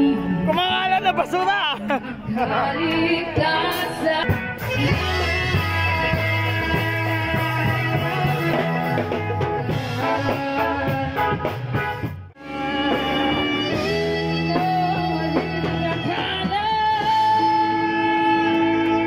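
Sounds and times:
bass line: 0:00.0 - 0:19.0
guitar: 0:00.0 - 0:19.0.

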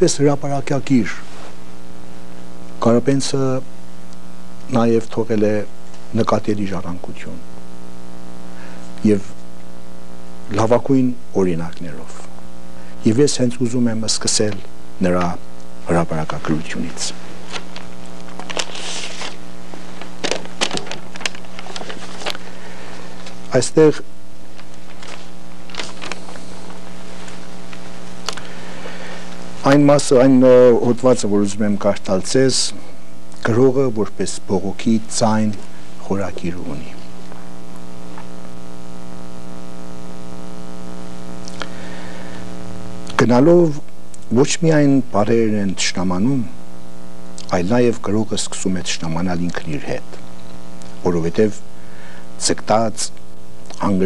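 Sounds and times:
electrical hum: 0:00.0 - 0:54.0
book pages rustling: 0:17.4 - 0:22.4, 0:24.6 - 0:27.9
short hiss: 0:18.7 - 0:19.4.

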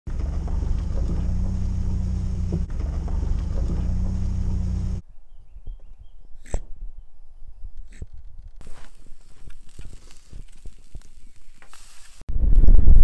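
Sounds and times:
engine and tyre rumble: 0:00.1 - 0:05.0.

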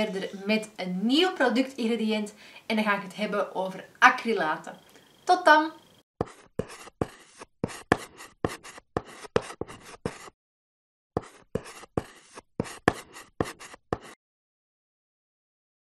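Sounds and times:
chalk writing on blackboard: 0:06.2 - 0:10.4, 0:11.2 - 0:14.2.

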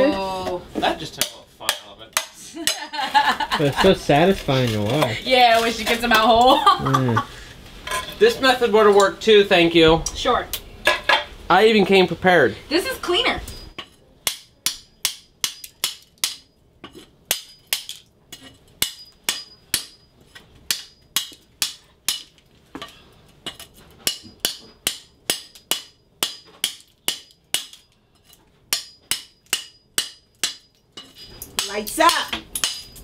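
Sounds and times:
hammer striking metal scraper: 0:13.7 - 0:20.1, 0:20.7 - 0:33.0.

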